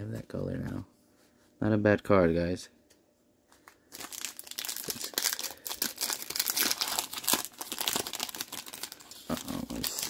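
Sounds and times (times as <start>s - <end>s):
plastic foil wrapper crinkling: 3.6s - 10.0s.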